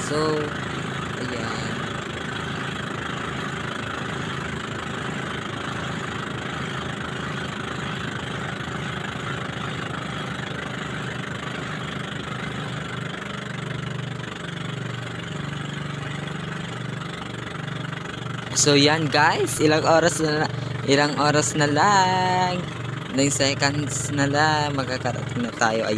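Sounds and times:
motorboat engine running: 0:00.0 - 0:25.9.

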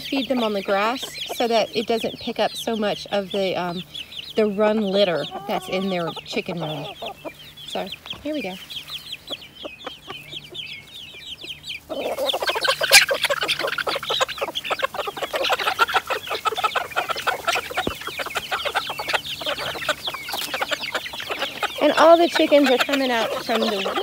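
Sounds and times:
chickens clucking and calling: 0:00.0 - 0:24.0.

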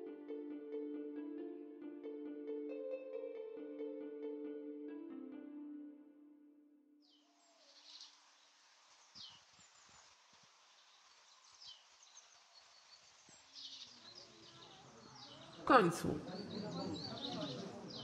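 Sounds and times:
soft steady hiss: 0:07.0 - 0:16.3
small birds chirping: 0:07.0 - 0:18.0.

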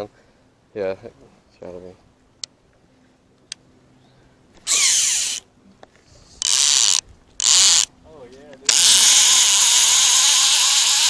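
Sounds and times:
fishing reel drag buzzing: 0:04.6 - 0:05.5, 0:06.4 - 0:07.9, 0:08.7 - 0:11.0.

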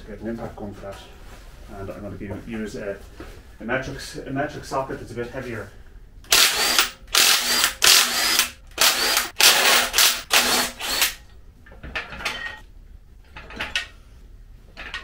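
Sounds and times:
impact wrench hammering: 0:06.3 - 0:11.2.

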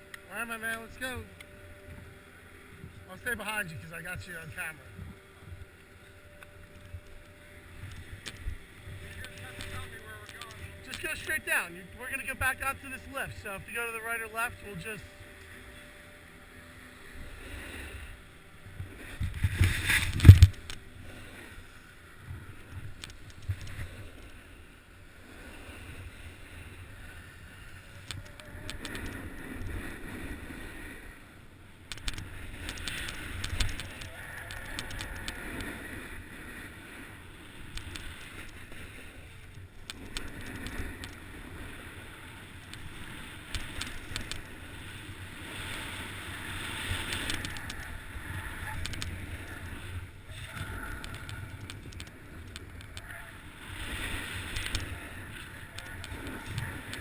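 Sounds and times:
skis sliding over snow: 0:07.7 - 0:15.2, 0:18.8 - 0:24.5, 0:32.2 - 0:57.0
wind rushing on microphone: 0:18.8 - 0:20.9, 0:27.8 - 0:31.1, 0:37.6 - 0:57.0.

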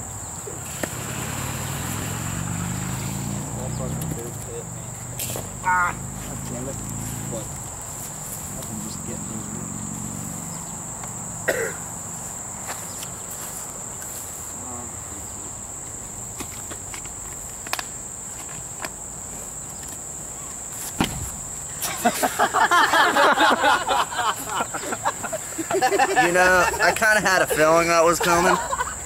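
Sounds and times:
crickets chirring: 0:00.0 - 0:29.0
people laughing and shouting: 0:05.6 - 0:06.1, 0:21.8 - 0:29.0.

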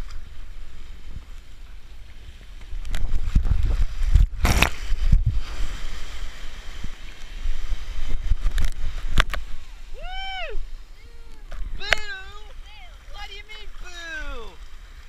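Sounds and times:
surf water sloshing and splashing: 0:00.0 - 0:15.0
loud water splash: 0:03.1 - 0:10.9.

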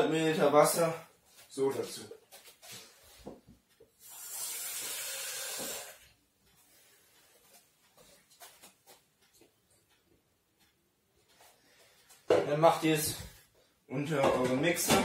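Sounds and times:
tap water running: 0:04.0 - 0:06.1.

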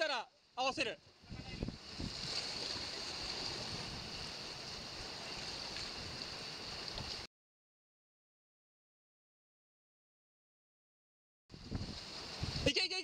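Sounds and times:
sea surf on rocky shore: 0:01.2 - 0:07.3, 0:11.6 - 0:13.0.

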